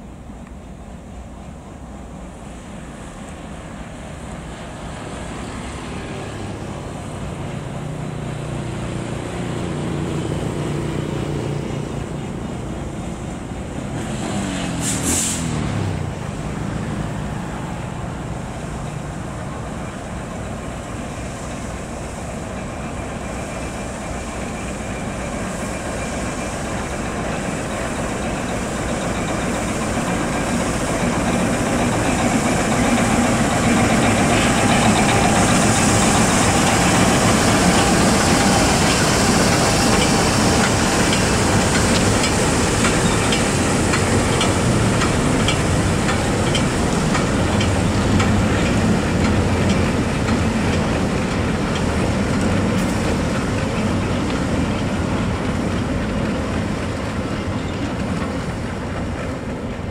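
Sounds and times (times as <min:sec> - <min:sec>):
diesel locomotive engine: 0:00.0 - 0:59.9
wagon wheels clicking on rails: 0:31.0 - 0:59.9.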